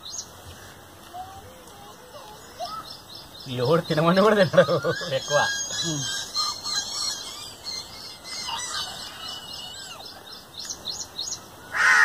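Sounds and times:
small birds chirping: 0.0 - 12.0
crow cawing: 11.7 - 12.0.

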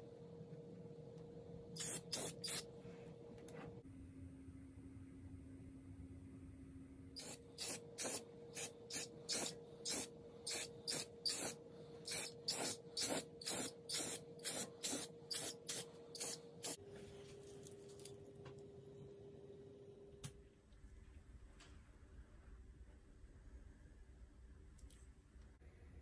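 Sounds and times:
spray can hissing: 1.8 - 2.7, 7.2 - 16.8.

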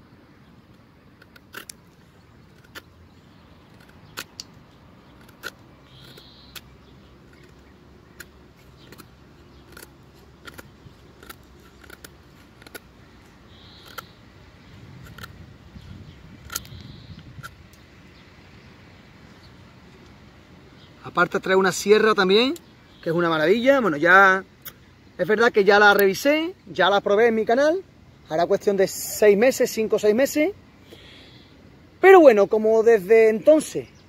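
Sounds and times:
knife whittling wood: 5.1 - 14.2.

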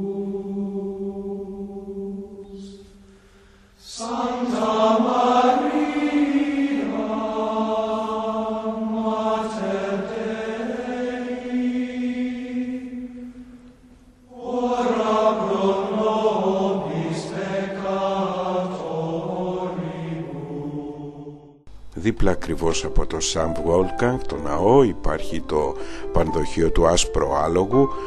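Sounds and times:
slow choral chant: 0.0 - 21.9.

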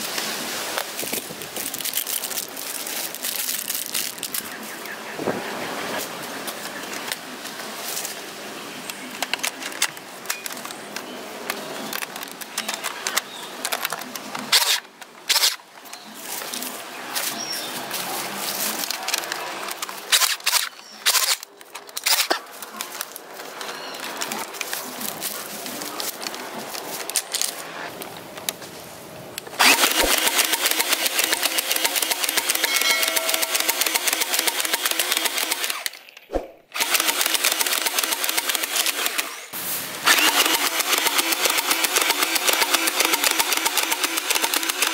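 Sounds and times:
toy blaster plastic rattles: 1.6 - 4.5, 18.8 - 22.4, 29.6 - 36.2, 36.8 - 39.4, 40.1 - 44.9
sharp plastic clicks: 8.9 - 16.0, 18.8 - 23.2, 33.3 - 39.4, 40.1 - 44.9.

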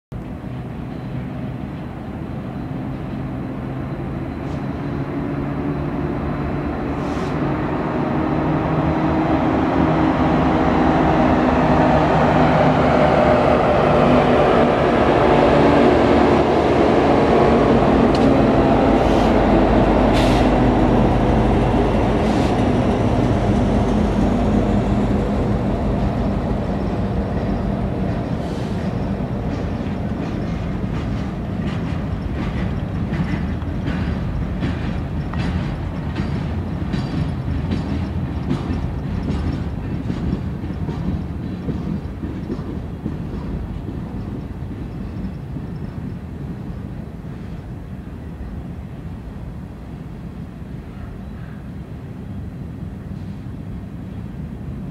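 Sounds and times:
diesel locomotive engines droning: 0.1 - 54.9
train wheels clicking over rail joints: 14.6 - 48.1.

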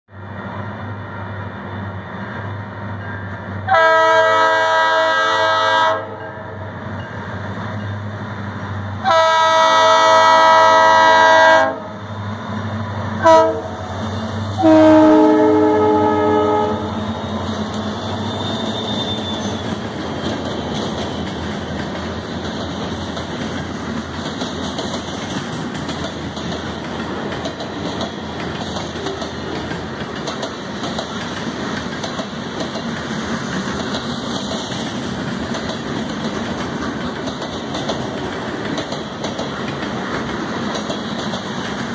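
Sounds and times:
locomotive air horn blasts: 3.7 - 6.3, 9.0 - 11.9, 13.2 - 13.8, 14.6 - 17.0.

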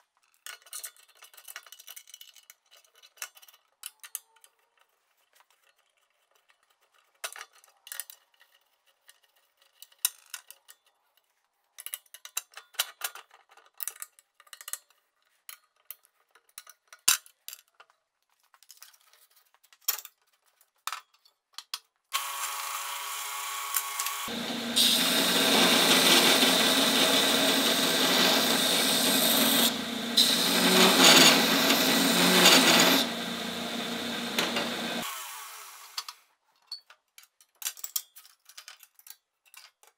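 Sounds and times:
belt grinder humming: 22.2 - 36.0
grinder belt running: 22.2 - 36.0.

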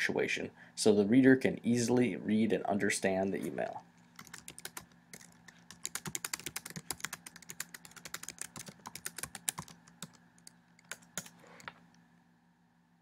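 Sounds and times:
typing on computer keyboard: 4.2 - 11.4.

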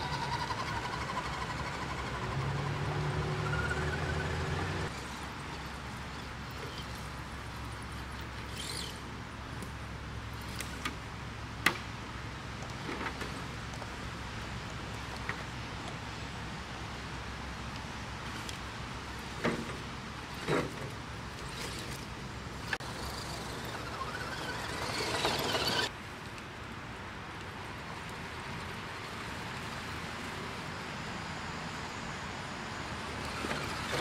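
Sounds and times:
small electric motor whirring: 22.8 - 25.9.

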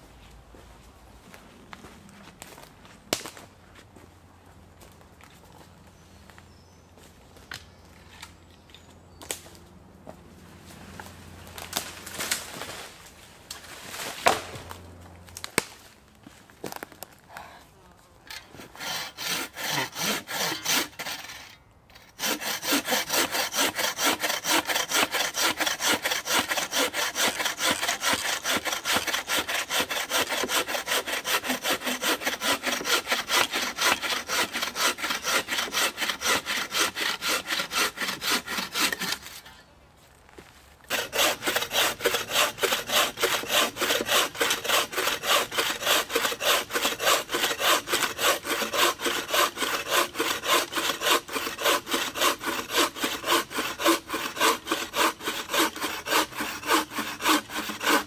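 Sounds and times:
bow saw cutting log: 18.3 - 39.6, 40.9 - 58.0.

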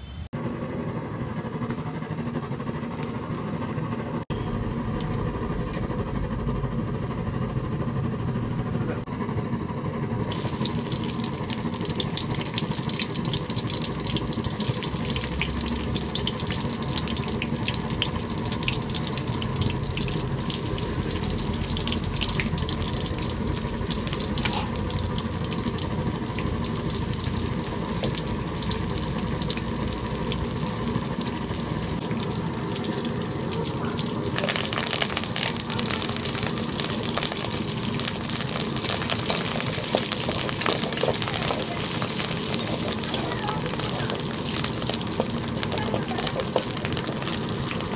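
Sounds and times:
low rumble: 4.3 - 9.1
onions sizzling in oil: 10.2 - 47.9.

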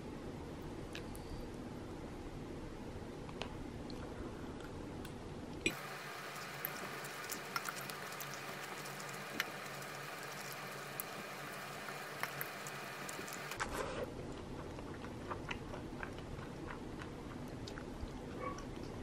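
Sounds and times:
faint steady hiss: 0.0 - 13.6.

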